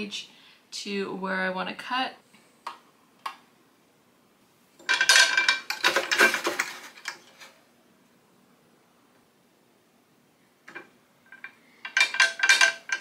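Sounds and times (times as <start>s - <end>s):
metal objects clattering: 4.8s - 7.6s, 10.7s - 13.0s.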